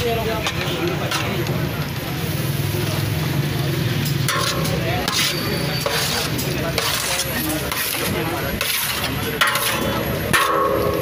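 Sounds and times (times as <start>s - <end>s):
chicken sizzling: 1.6s - 11.0s
wooden spatula scraping pan: 4.3s - 10.6s.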